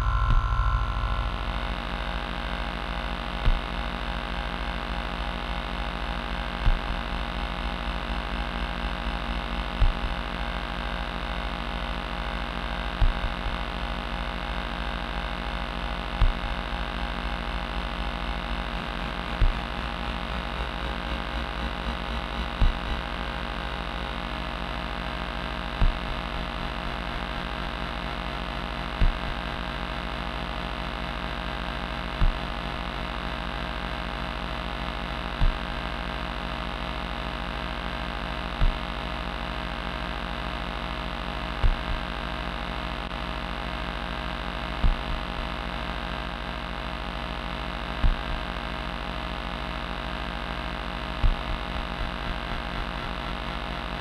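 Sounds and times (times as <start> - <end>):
short low thump: 0.0 - 1.5, 51.2 - 51.6
synthesizer drone: 0.0 - 4.8, 51.0 - 54.0.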